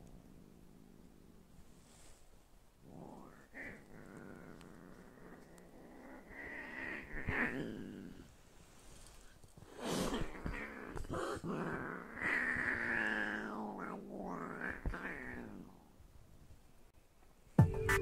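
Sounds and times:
cat growling yowl: 2.8 - 8.4, 9.7 - 15.9
cat hissing: 2.8 - 8.4, 9.6 - 15.8.

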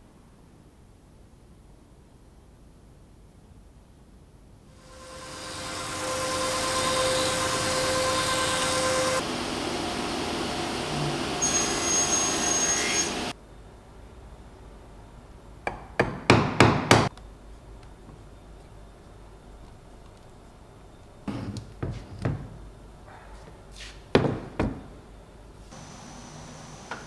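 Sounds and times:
table saw cutting wood: 4.8 - 13.3.

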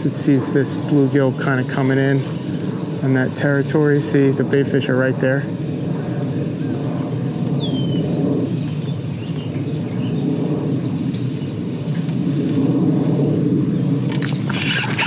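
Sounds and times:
descending bird chirp: 0.0 - 3.0
low rumble: 0.0 - 15.0
sharp clicking noise: 8.5 - 11.3.

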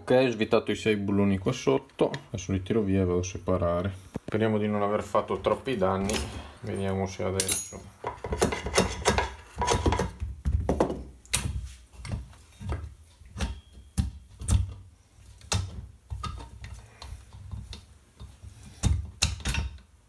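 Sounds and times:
metal clinks and knocks: 7.4 - 10.1.

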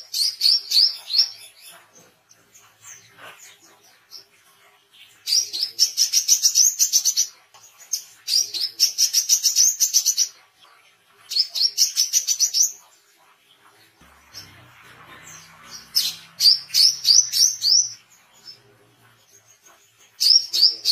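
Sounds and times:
sunbird singing: 14.0 - 20.9.

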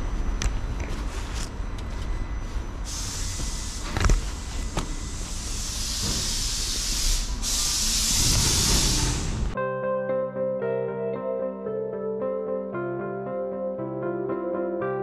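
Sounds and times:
steady hiss: 2.8 - 9.6.

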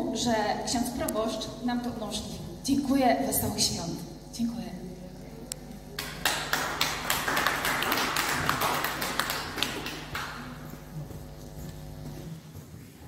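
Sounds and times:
audience applauding: 6.0 - 10.7.

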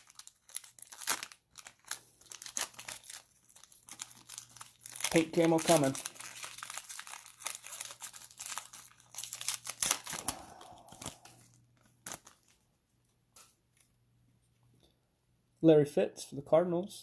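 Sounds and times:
foil wrapper crinkling and tearing: 0.0 - 12.7.

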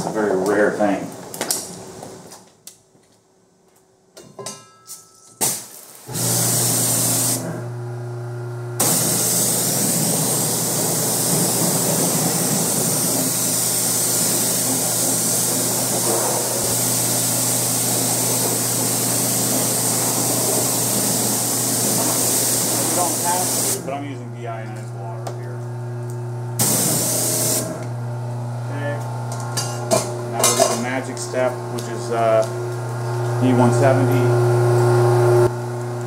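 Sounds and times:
water spray hissing: 5.4 - 7.5, 8.8 - 23.9, 26.6 - 27.8
pressure washer humming: 5.4 - 36.0.

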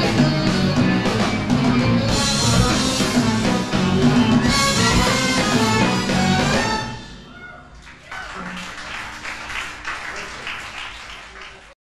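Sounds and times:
ensemble final chord with trumpet: 2.0 - 7.3
audience applause: 7.8 - 11.8.

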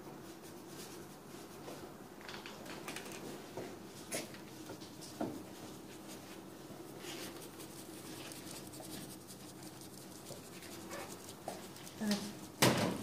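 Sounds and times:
paintbrush scratching on stencil: 6.9 - 12.6
brush tap: 7.3 - 13.0.

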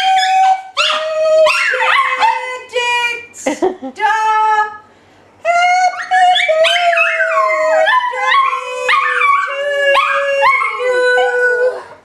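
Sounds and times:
dog howling: 6.3 - 12.0.

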